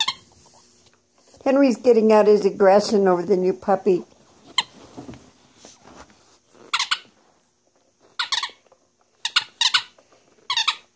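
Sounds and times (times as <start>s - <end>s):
squeaky toy ball squeaking: 0.0s - 0.3s, 6.7s - 7.1s, 8.1s - 8.6s, 9.2s - 10.9s.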